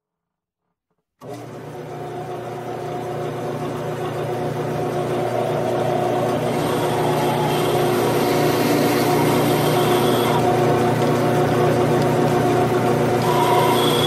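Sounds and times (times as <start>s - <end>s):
metal lathe whining: 1.2s - 14.0s
drill cutting metal with hiss: 5.6s - 10.6s, 13.2s - 14.0s.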